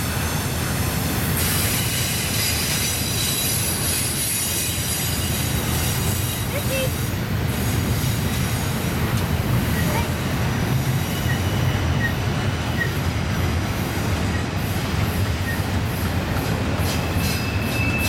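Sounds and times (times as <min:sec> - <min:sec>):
train wheels rumbling on rails: 0:00.0 - 0:18.0
high-pitched wheel flange squeal: 0:11.0 - 0:13.0, 0:16.9 - 0:18.0.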